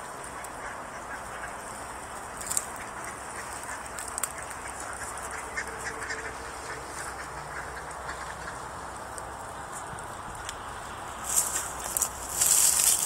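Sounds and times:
geese calling and honking: 0:00.0 - 0:13.0.

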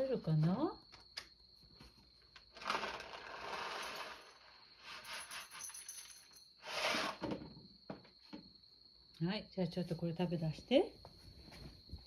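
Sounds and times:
rustling and scraping: 0:01.7 - 0:08.5.

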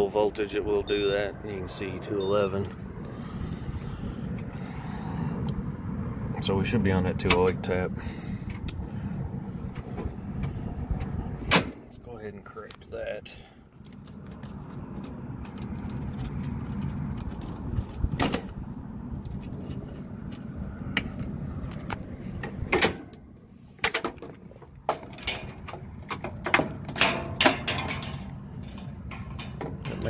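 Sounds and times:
steady low rumble: 0:00.0 - 0:30.0
spade connectors clicking and scraping: 0:13.8 - 0:18.5, 0:19.2 - 0:30.0.

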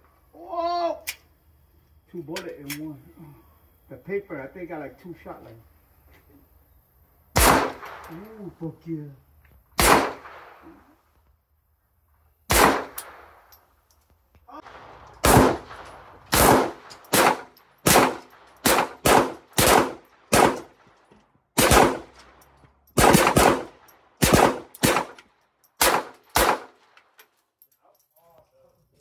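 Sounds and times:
handgun shots: 0:07.4 - 0:08.2, 0:09.8 - 0:10.5, 0:12.5 - 0:13.2, 0:15.2 - 0:20.8, 0:21.6 - 0:22.3, 0:23.0 - 0:26.8.

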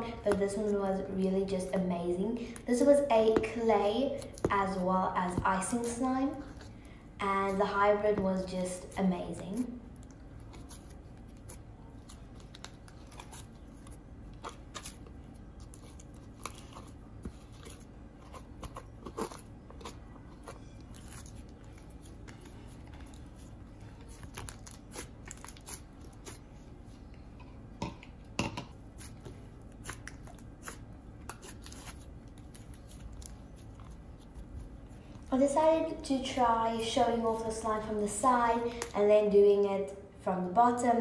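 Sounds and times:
slime crackling and popping: 0:24.0 - 0:26.4.

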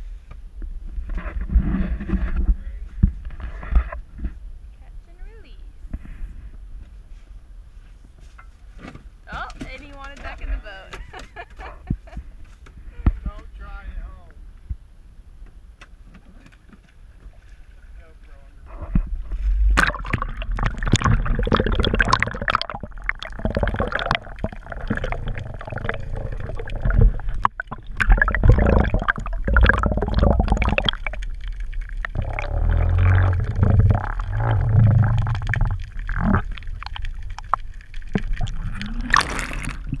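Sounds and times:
muffled underwater gurgling: 0:18.7 - 0:40.0
water rush: 0:19.6 - 0:40.0.

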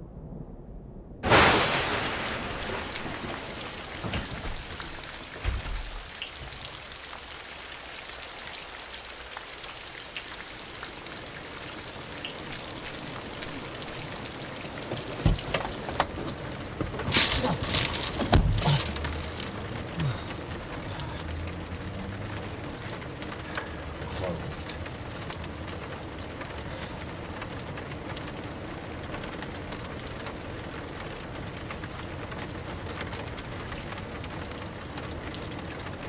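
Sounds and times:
heavy rain falling: 0:01.2 - 0:36.0
sharp knocks and thuds: 0:02.6 - 0:06.6, 0:14.8 - 0:19.5.

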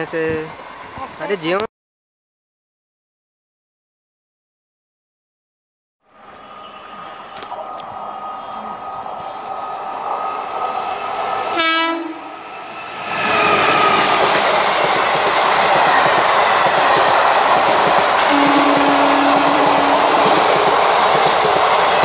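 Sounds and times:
train rushing and wheel clatter: 0:00.0 - 0:01.6, 0:06.1 - 0:22.0
train horn: 0:11.5 - 0:12.4, 0:18.2 - 0:20.4.

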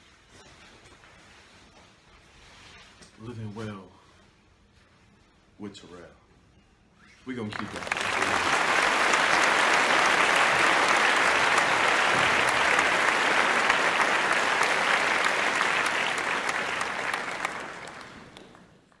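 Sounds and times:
crowd applauding: 0:07.5 - 0:19.0.

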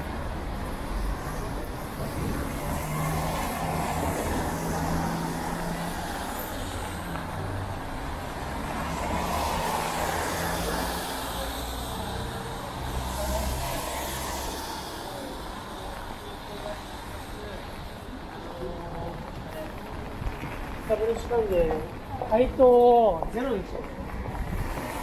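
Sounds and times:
tyres hissing on wet asphalt: 0:08.7 - 0:17.9.

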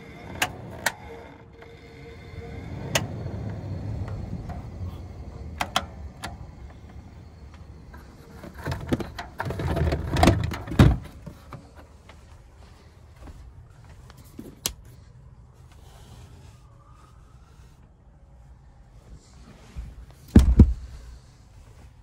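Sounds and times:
fan motor hum: 0:00.0 - 0:14.7
handling knocks and rustles: 0:07.5 - 0:14.9.

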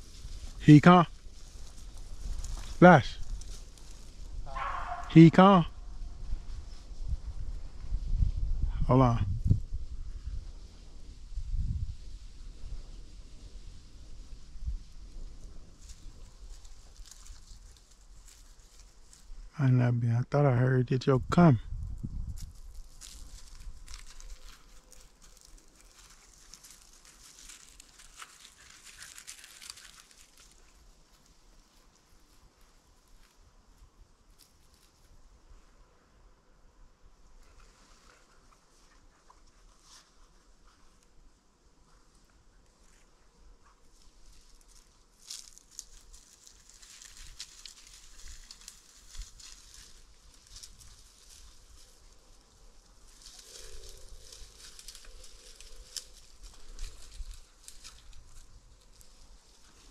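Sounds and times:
dry leaves rustling and crackling: 0:00.0 - 0:08.2, 0:09.7 - 0:19.5, 0:22.2 - 0:35.4, 0:37.4 - 0:59.9
twigs snapping: 0:22.4 - 0:30.9, 0:44.7 - 0:52.0, 0:53.1 - 0:59.3.

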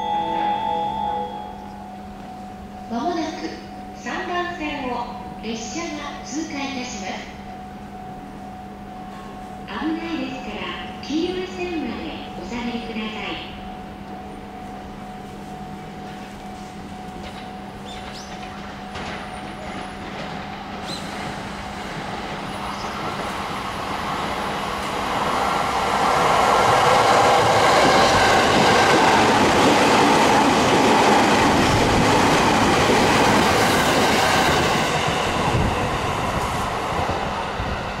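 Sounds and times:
train wheels on rail: 0:14.6 - 0:38.0.

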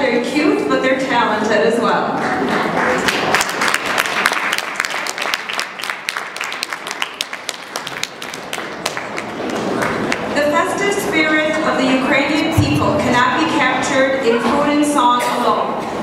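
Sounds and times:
audience applauding: 0:02.2 - 0:10.4.

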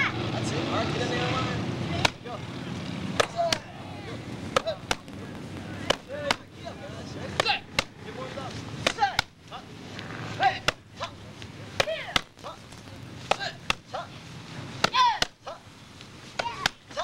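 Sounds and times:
kicks smacking a paddle: 0:04.6 - 0:05.1, 0:05.8 - 0:06.5, 0:08.8 - 0:09.4, 0:13.3 - 0:13.9, 0:14.8 - 0:15.4
person shouting: 0:14.9 - 0:15.6.

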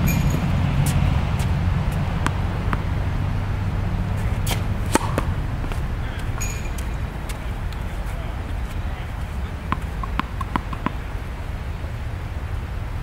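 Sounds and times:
racket striking ball: 0:00.0 - 0:03.2, 0:04.0 - 0:11.1
tennis ball bouncing on court: 0:00.0 - 0:11.1
steady low rumble: 0:00.0 - 0:13.0.

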